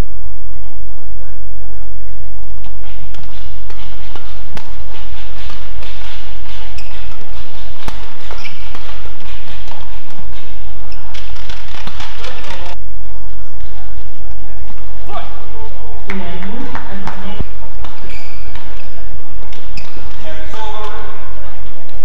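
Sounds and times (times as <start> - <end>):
low rumble: 0.0 - 20.2
rackets hitting shuttlecock: 2.8 - 12.8, 16.1 - 21.0.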